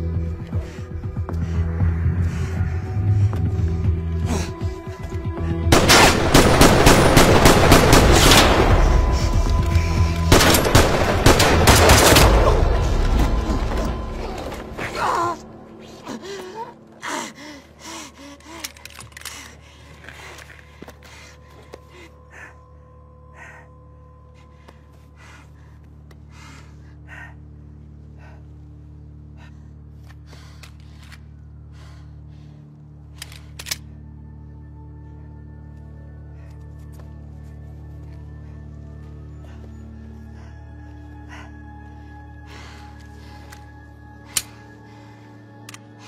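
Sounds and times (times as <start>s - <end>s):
low music drone: 0.0s - 46.0s
automatic gunfire: 5.8s - 8.9s.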